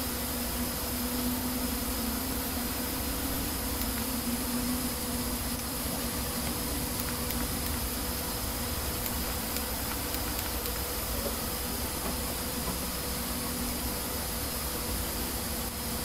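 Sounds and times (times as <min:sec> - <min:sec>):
computer hiss and hum: 0:00.0 - 0:16.0.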